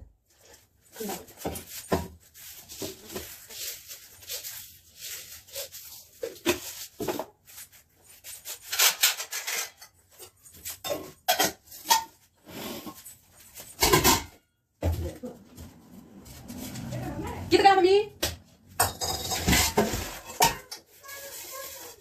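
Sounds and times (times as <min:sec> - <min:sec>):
steel utensils and pots clinking: 0:08.1 - 0:14.5, 0:18.7 - 0:22.0
scraping noise: 0:15.6 - 0:18.0.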